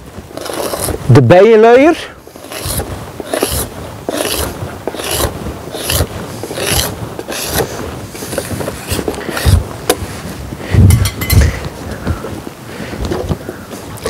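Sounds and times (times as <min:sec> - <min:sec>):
palette knife scraping board: 0:00.3 - 0:01.1, 0:02.3 - 0:10.0.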